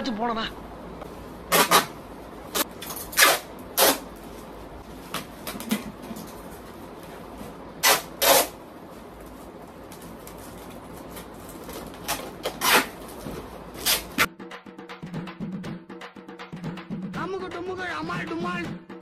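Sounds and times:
packing tape ripping off roll: 1.5s - 4.1s, 7.8s - 8.6s, 9.8s - 14.3s.

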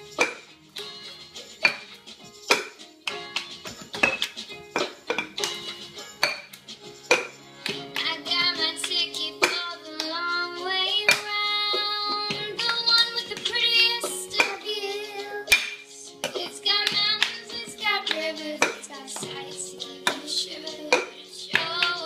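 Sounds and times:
hands clapping: 0.2s - 14.6s, 15.5s - 22.0s
child singing: 8.0s - 22.0s.

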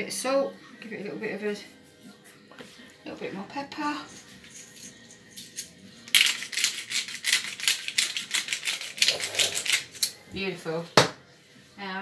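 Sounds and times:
pepper mill grinding: 4.2s - 10.2s.

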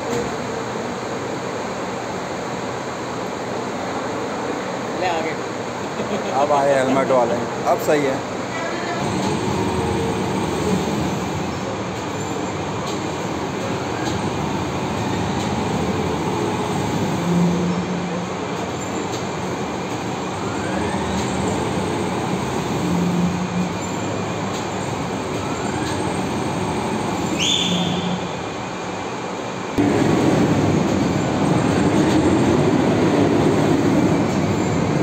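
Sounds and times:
crane machinery noise: 0.0s - 35.0s
brief high whistle: 27.3s - 28.3s.

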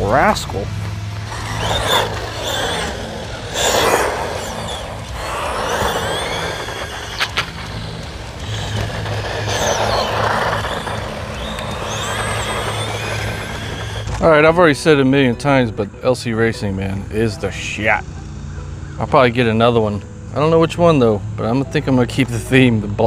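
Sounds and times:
rc car electric motor whining: 0.0s - 15.6s
rustling over rough ground: 0.7s - 14.3s.

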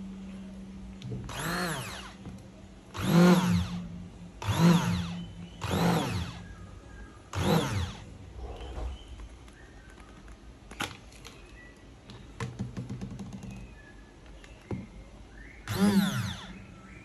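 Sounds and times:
hand blender motor spinning: 1.3s - 2.2s, 3.0s - 3.8s, 4.4s - 6.4s, 7.3s - 8.0s, 15.7s - 16.5s.

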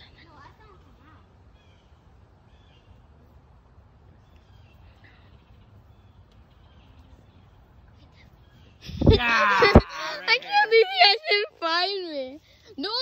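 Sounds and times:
faint bird chirps: 0.0s - 3.4s, 4.0s - 9.1s.

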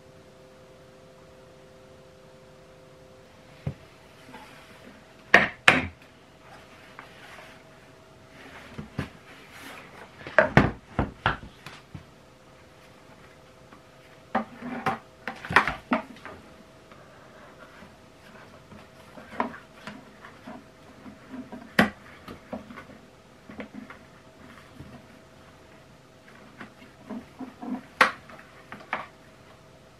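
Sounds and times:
plastic knocks and clatter: 10.2s - 12.1s.

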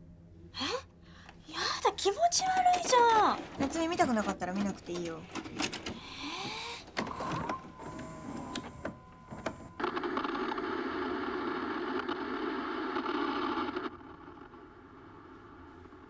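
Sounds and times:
video deck clicks and whine: 2.6s - 14.4s
television static hiss: 9.4s - 16.0s.

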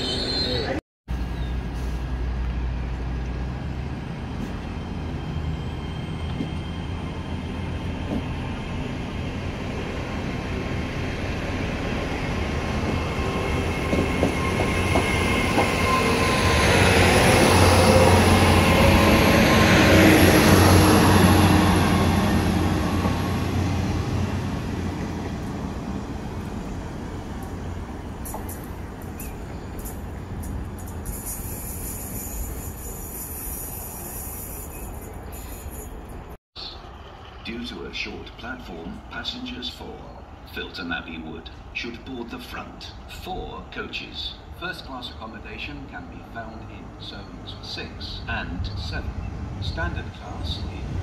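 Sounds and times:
diesel train engine hum: 0.0s - 51.0s.

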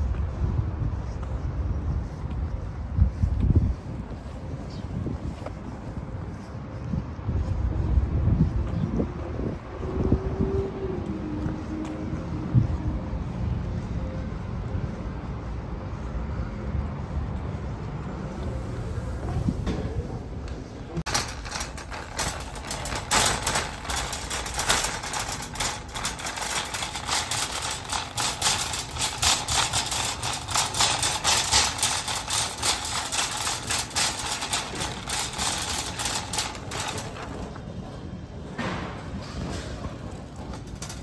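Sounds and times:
shopping cart rattling on tiles: 21.0s - 37.8s, 39.1s - 41.0s.

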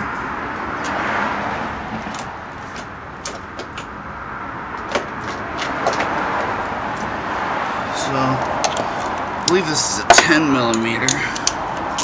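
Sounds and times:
metal tools clinking: 4.8s - 6.5s.

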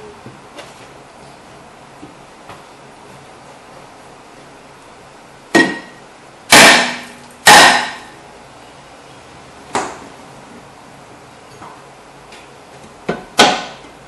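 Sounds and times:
hammer striking metal rotor: 5.6s - 8.2s.

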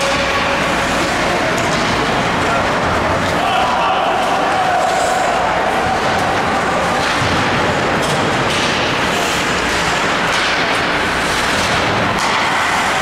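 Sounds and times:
rush of noise from hockey play: 0.0s - 13.0s
stick hitting puck: 6.9s - 13.0s.

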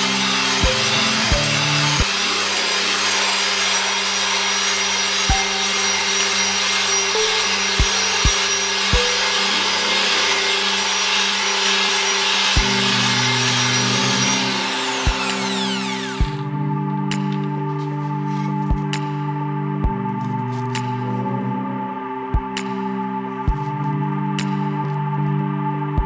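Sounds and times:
drill wire mesh scrubbing rust: 0.0s - 16.4s
drill spinning down whine: 0.0s - 17.3s
background music: 0.0s - 26.0s.

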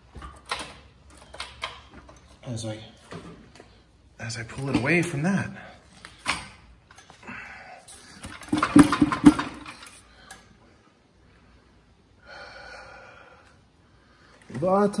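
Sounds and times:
metal knocks and clunks: 8.2s - 9.8s.

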